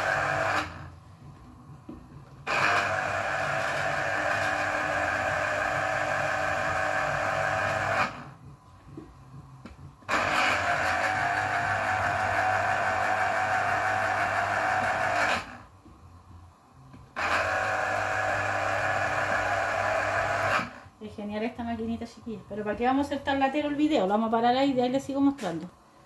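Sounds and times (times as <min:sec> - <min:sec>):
electric juicer motor humming: 0:00.0 - 0:01.0, 0:02.4 - 0:08.4, 0:10.1 - 0:15.7, 0:17.2 - 0:21.0.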